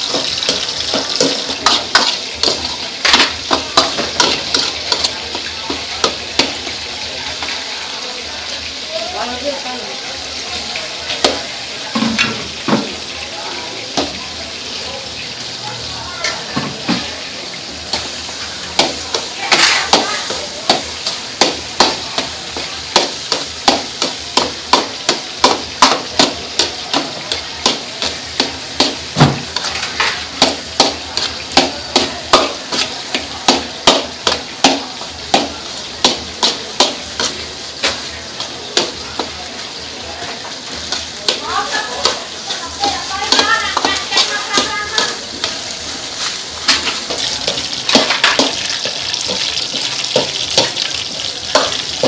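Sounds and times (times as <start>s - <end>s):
metal ladle clanking on wok: 0.0s - 6.7s, 18.7s - 22.3s, 46.6s - 52.0s
rice sizzling in a wok: 0.0s - 52.0s.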